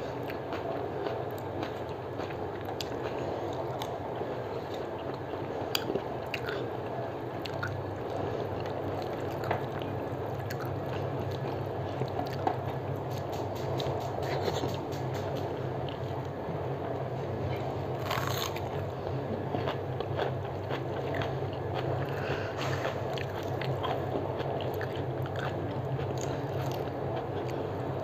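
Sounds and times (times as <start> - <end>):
low background hum: 0.0 - 28.0
chewing: 4.6 - 6.7, 7.4 - 16.2, 17.5 - 18.8, 19.5 - 27.7.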